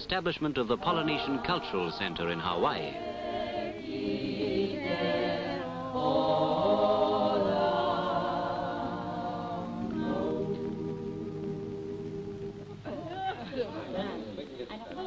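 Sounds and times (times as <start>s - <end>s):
choir singing a cappella: 0.6s - 14.4s.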